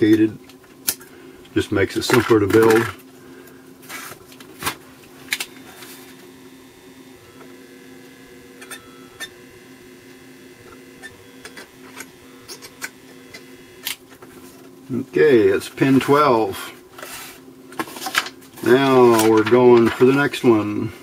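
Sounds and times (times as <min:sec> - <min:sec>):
soldering gun humming: 0:02.5 - 0:16.7.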